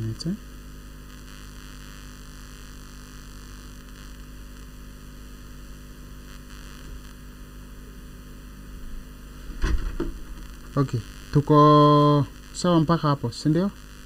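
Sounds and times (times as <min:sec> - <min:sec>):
low electrical hum: 0:00.0 - 0:14.0
even hiss: 0:08.9 - 0:14.0.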